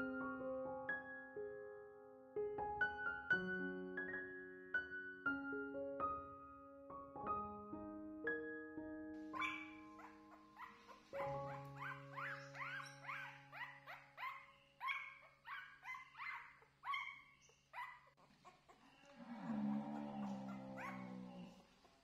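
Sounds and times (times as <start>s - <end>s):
soft piano music: 0.0s - 16.4s
puppy yelping and whimpering: 9.4s - 19.0s, 19.7s - 21.3s.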